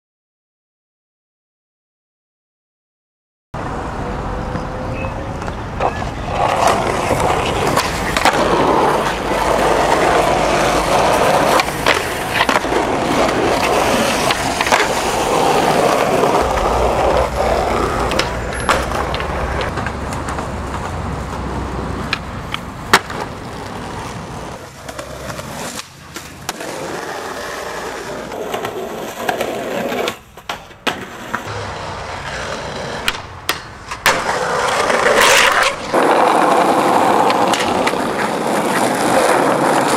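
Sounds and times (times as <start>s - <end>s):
skateboard wheels rolling on concrete: 3.6s - 39.9s
skateboard clacks: 5.3s - 39.9s.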